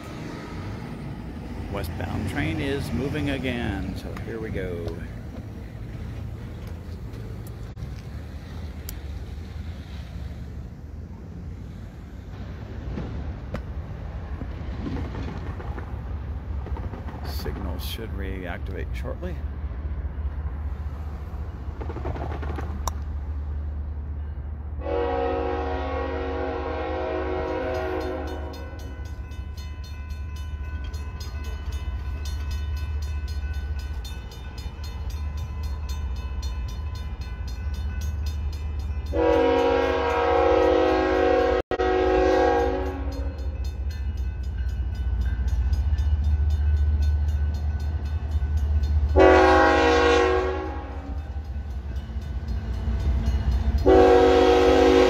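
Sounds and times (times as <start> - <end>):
crossing bells ringing: 1.6 - 5.2, 27.0 - 55.0
train air horn blasts: 24.8 - 28.8, 39.1 - 43.3, 49.2 - 51.2, 53.8 - 55.0.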